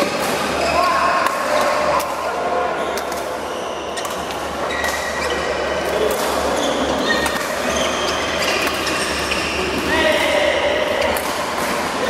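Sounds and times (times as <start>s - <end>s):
shoes squeaking on court: 2.8s - 5.8s, 6.4s - 9.8s
rackets striking shuttlecock: 2.9s - 3.4s, 4.0s - 5.2s, 5.8s - 6.5s, 7.1s - 12.0s.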